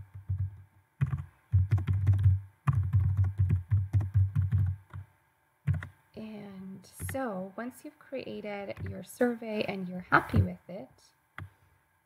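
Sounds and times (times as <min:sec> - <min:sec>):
typing on computer keyboard: 0:00.1 - 0:05.0, 0:05.7 - 0:05.9.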